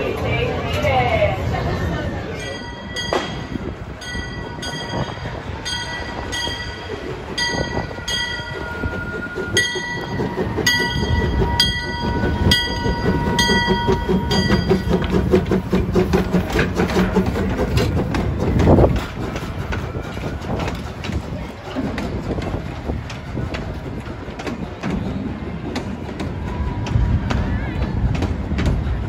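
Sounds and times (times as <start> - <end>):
locomotive chuffing: 0.0 - 29.0
steam locomotive bell ringing: 2.2 - 15.6.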